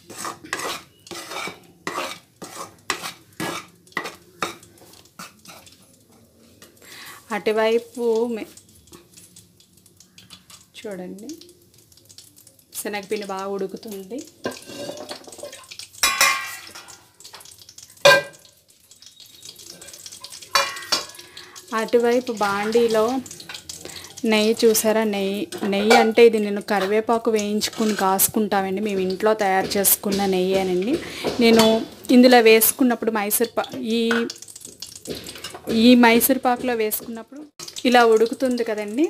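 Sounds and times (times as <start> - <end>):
ladle scraping metal pan: 0.0 - 5.8, 14.4 - 17.0, 19.7 - 21.3, 27.6 - 28.3
metal ladle scraping pan: 0.0 - 5.9, 14.4 - 18.5, 19.5 - 21.6, 25.5 - 32.0, 33.6 - 37.8.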